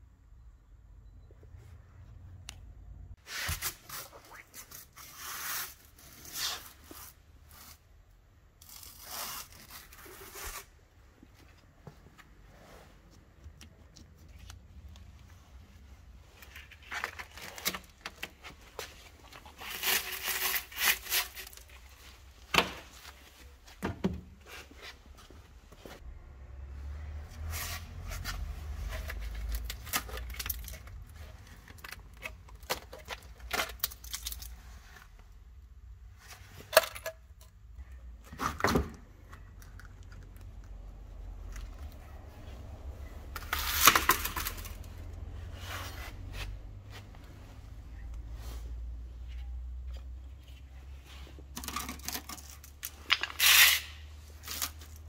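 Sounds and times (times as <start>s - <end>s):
rustling and scraping: 8.6s - 26.0s, 41.1s - 55.0s.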